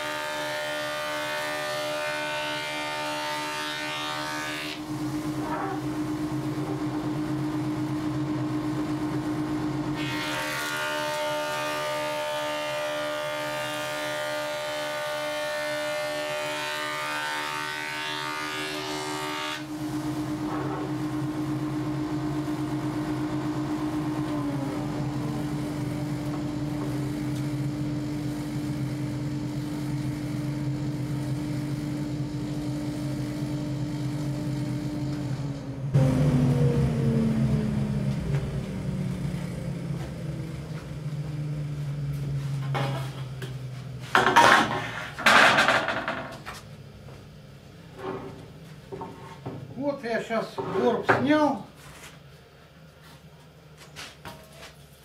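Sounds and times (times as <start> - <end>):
jointer motor humming: 19.6 - 44.2.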